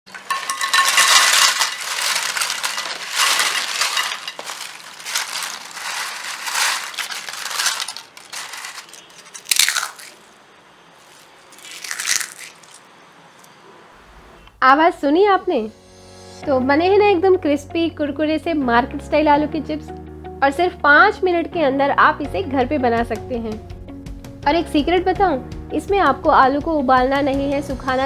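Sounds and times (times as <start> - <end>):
potato chips crackling and rustling: 0.1 - 10.4, 11.0 - 12.9
chips crunching in a fist: 0.5 - 10.4, 11.0 - 12.8.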